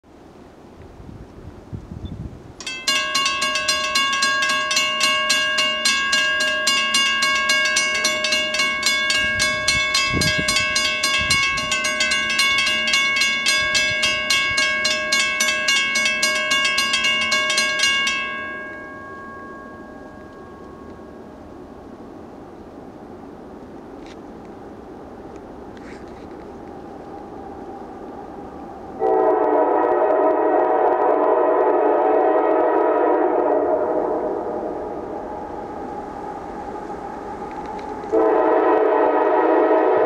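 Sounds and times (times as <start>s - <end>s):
railroad crossing bell ringing: 2.6s - 21.7s.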